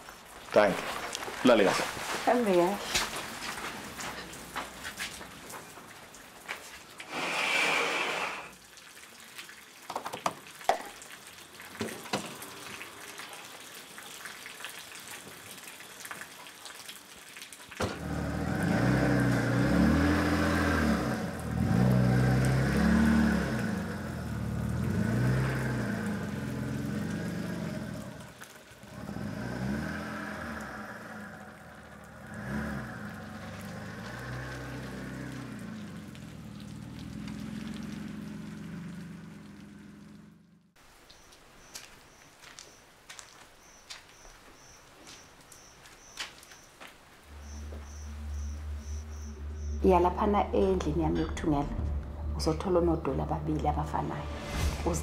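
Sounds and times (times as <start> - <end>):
short hiss: 7.1 - 8.5
car engine revving: 17.8 - 40.8, 47.2 - 55.0.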